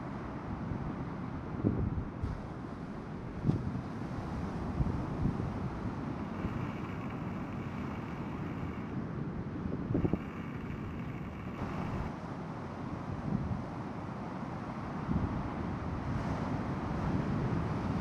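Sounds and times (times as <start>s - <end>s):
low rumble of breaking surf: 0.1s - 18.0s
wind buffeting microphone: 3.2s - 12.2s.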